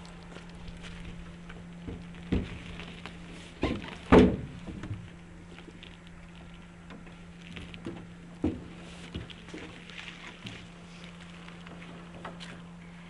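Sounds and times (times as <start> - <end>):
hollow thumps on metal boat hull: 3.6 - 5.1.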